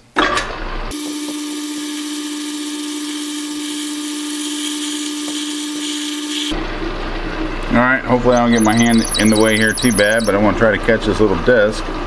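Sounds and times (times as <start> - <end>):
metal lathe whine: 1.0 - 6.6.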